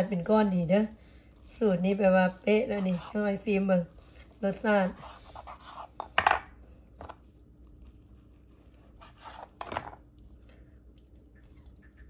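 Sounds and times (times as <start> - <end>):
knife scraping cutting board: 2.3 - 6.4, 8.5 - 10.0.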